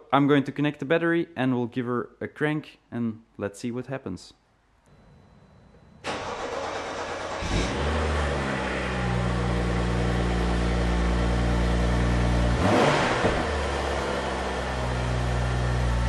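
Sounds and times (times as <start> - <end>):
car engine starting and idling: 4.9 - 16.0
engine revving: 4.9 - 16.0.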